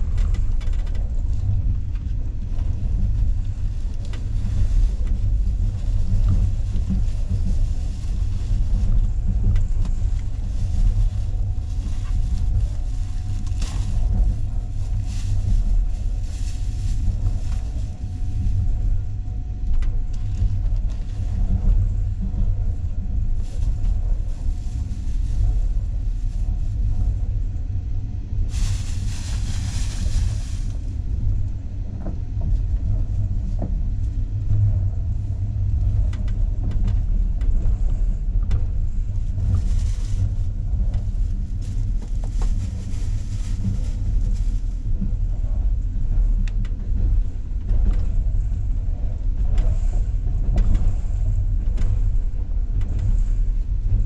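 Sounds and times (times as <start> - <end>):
faint steady whine: 0.0 - 54.0
train wheels rumbling on rails: 0.0 - 54.0.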